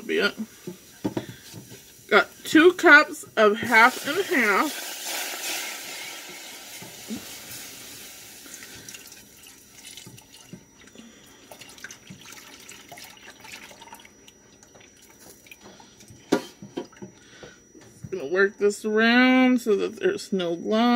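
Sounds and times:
liquid pouring into hot pot hissing: 3.7s - 10.4s.

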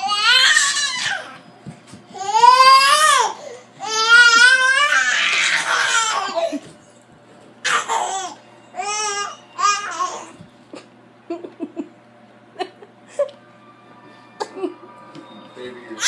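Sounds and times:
toddler squealing and laughing: 2.2s - 6.6s.

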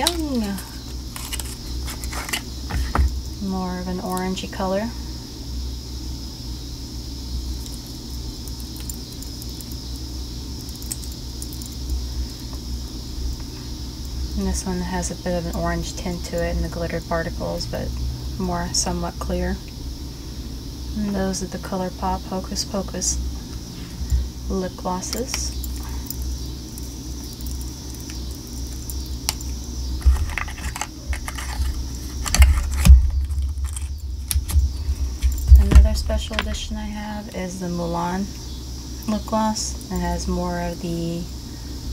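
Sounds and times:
small items clicking: 0.0s - 3.1s, 25.1s - 36.6s
plastic tubes clicking and rattling: 27.4s - 34.6s.

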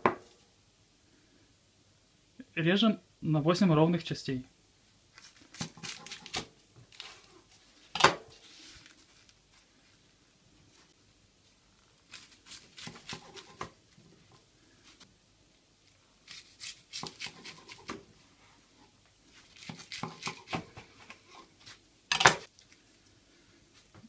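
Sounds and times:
knife crunching through seaweed roll: 12.1s - 13.6s.

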